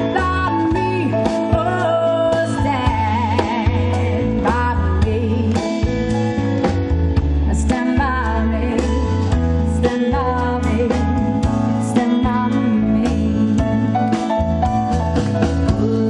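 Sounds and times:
woman singing: 0.0 - 5.9, 7.4 - 14.0, 15.6 - 16.0
bass guitar: 0.0 - 16.0
electric guitar: 0.0 - 16.0.

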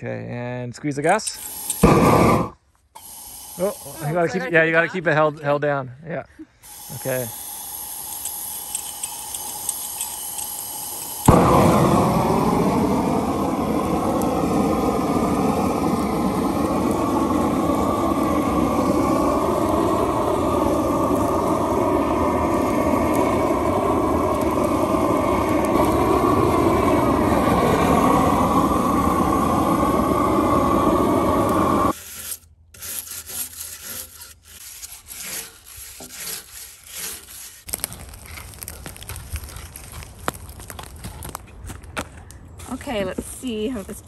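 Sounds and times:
propane torch flame rushing: 1.0 - 4.8, 6.6 - 32.0
stiff brush scrubbing log: 31.9 - 40.4.

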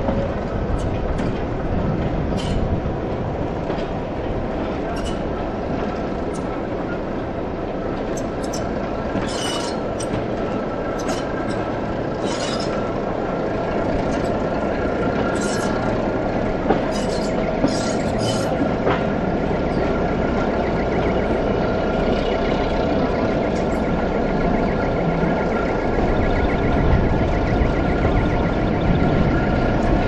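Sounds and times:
diesel locomotive engine: 0.0 - 30.0
wheels rumbling on rail: 0.0 - 30.0
short high squeals: 8.2 - 9.8, 12.2 - 12.8.

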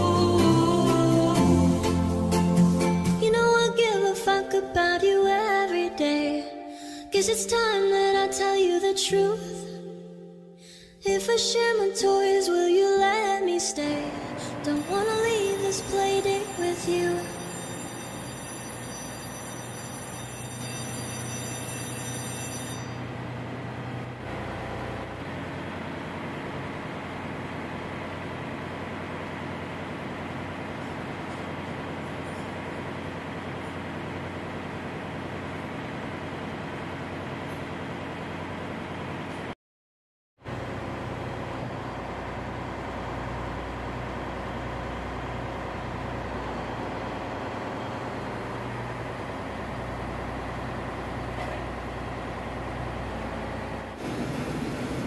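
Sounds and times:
ship machinery drone: 12.9 - 39.5, 40.5 - 55.0.

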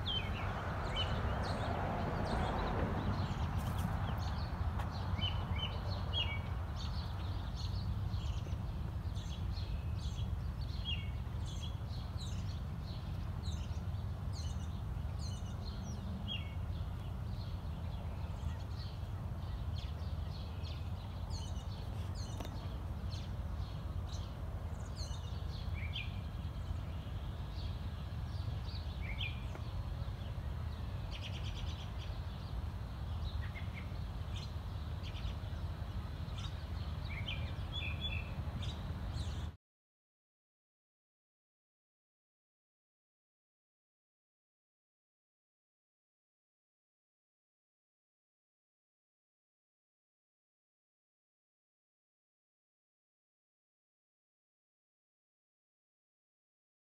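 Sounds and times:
songbirds chirping and singing: 0.0 - 39.6.

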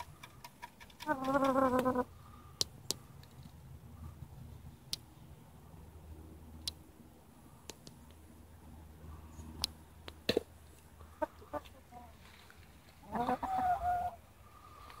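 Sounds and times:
chickens clucking: 0.0 - 2.2, 11.0 - 12.3, 12.9 - 15.0.

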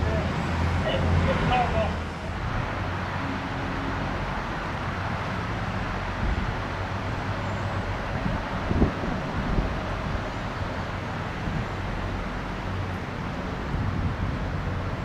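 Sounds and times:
distant road traffic hum: 0.0 - 15.0.

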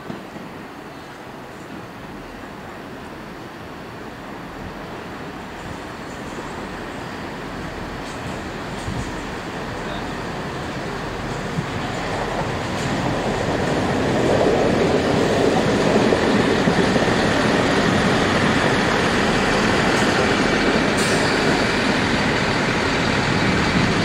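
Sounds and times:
diesel train engine: 0.6 - 24.0
wheels rumbling on rails: 5.6 - 24.0.

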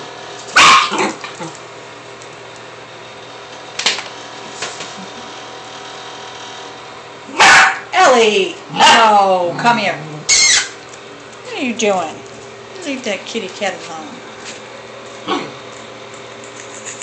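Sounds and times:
steady background hum: 0.0 - 17.0
dog barking: 0.6 - 1.2, 7.3 - 7.9.

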